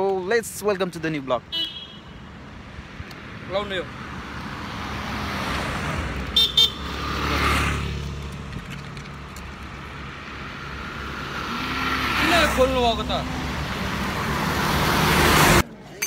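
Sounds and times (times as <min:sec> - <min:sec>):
car horn toots: 0:01.5 - 0:02.2, 0:06.4 - 0:06.9
car driving past: 0:04.2 - 0:08.5.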